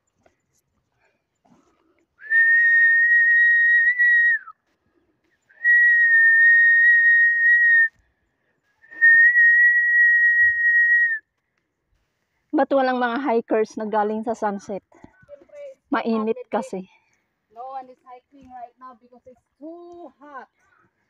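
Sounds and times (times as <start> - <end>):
person whistling high notes: 2.2 - 4.5, 5.6 - 7.9, 8.9 - 11.2.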